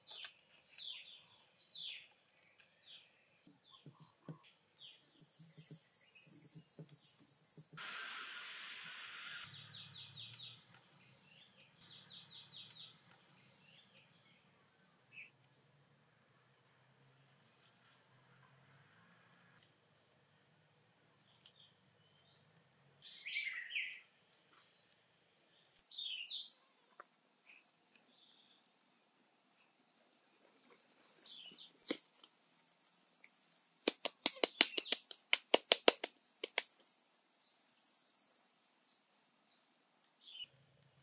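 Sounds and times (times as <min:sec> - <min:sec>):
bird chirps: 0:23.0 - 0:24.1, 0:25.8 - 0:26.7, 0:30.8 - 0:32.4, 0:33.9 - 0:36.6, 0:39.4 - 0:40.5.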